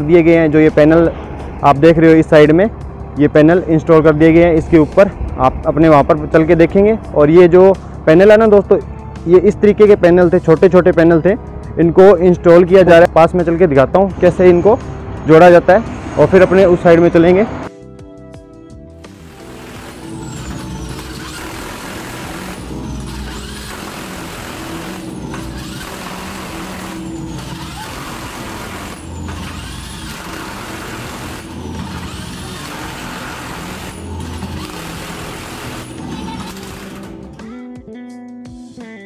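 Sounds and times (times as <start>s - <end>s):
impact wrench hammering: 19.1s - 37.4s.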